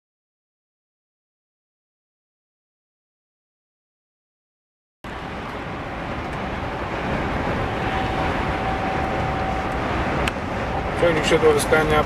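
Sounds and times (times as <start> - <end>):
truck cab road noise: 5.0 - 12.0
faint steady tone: 5.2 - 12.0.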